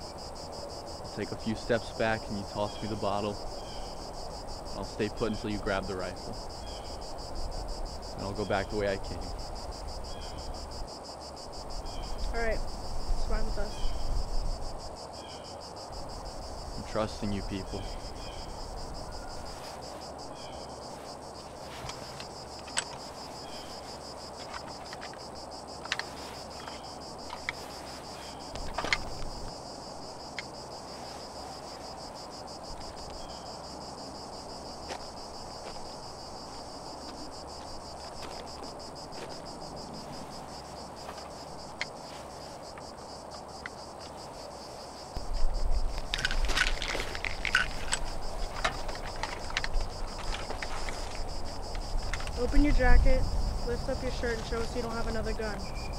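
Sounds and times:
insects chirring: 0:00.0 - 0:55.9
rustling: 0:16.0 - 0:33.4, 0:34.8 - 0:55.9
small clicks and knocks: 0:25.8 - 0:27.6, 0:45.9 - 0:52.4.

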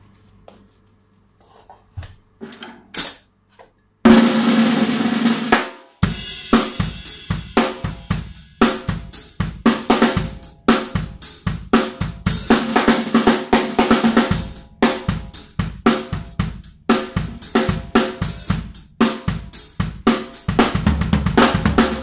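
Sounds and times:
snare drum struck with sticks: 0:03.0 - 0:03.2.

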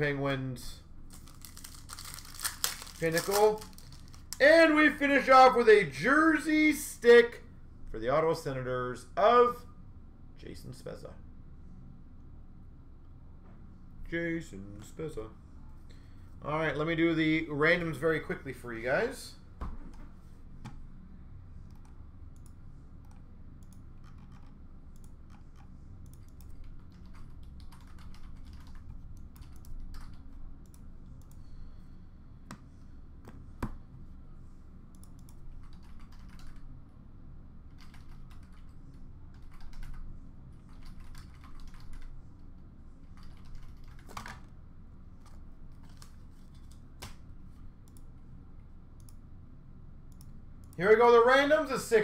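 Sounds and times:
low room hum: 0:00.0 - 0:52.0.

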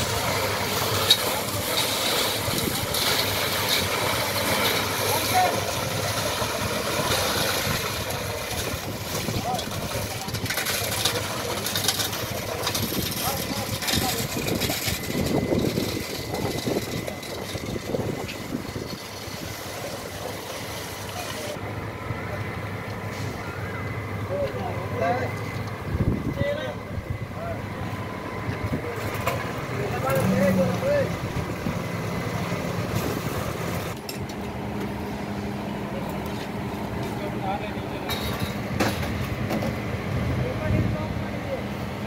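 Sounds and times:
concrete pumping through hose: 0:00.0 - 0:21.6
diesel engine running: 0:00.0 - 0:42.0.

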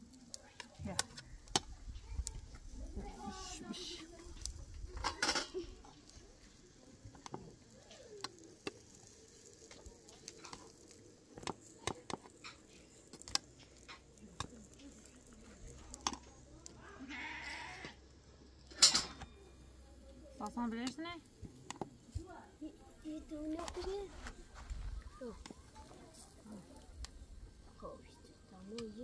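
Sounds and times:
livestock bleating: 0:17.0 - 0:18.0.

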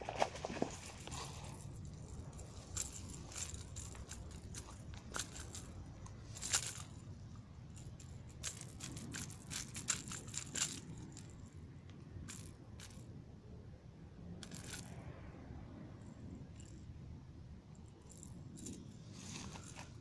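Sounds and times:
light clicks and rattles: 0:00.0 - 0:13.1.

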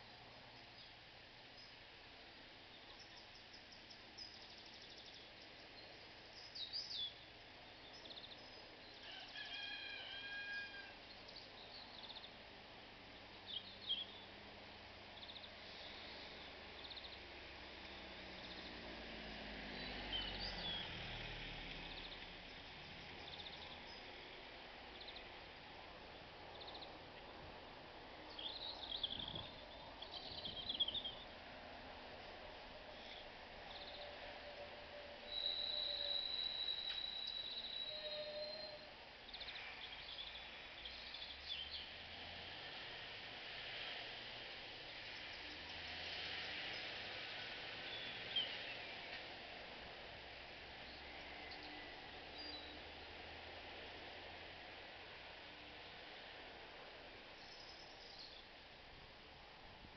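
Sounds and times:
small birds chirping and trilling: 0:02.6 - 0:18.8, 0:19.7 - 0:21.2, 0:21.8 - 0:25.4, 0:26.2 - 0:27.4, 0:28.2 - 0:31.4, 0:32.9 - 0:34.2, 0:35.3 - 0:42.0, 0:44.9 - 0:49.0, 0:50.8 - 0:53.0, 0:57.4 - 0:58.6.

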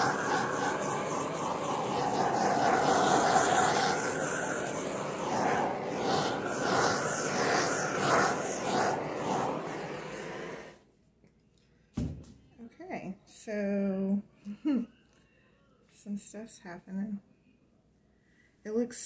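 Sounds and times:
gas torch hissing: 0:00.0 - 0:10.8.

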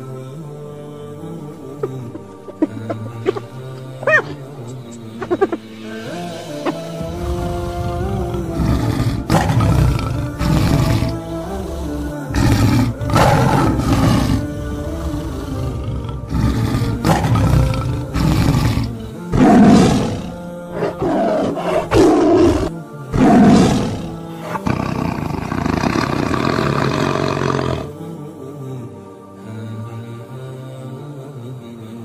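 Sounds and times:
background music: 0:00.0 - 0:32.0
big cat roars and growls: 0:06.1 - 0:28.0.

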